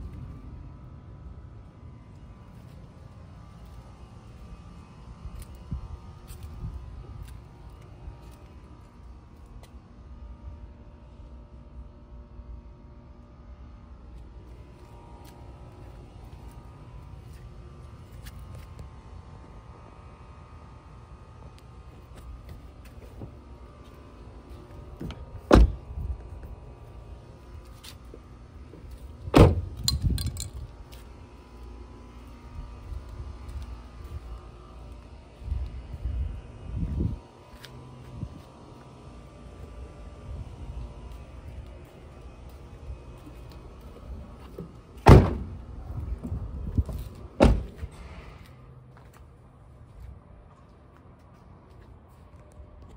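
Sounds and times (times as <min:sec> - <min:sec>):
steady low background rumble: 0:00.0 - 0:52.9
car doors slamming: 0:25.0 - 0:25.8, 0:29.3 - 0:29.8, 0:45.0 - 0:45.6, 0:47.4 - 0:48.0.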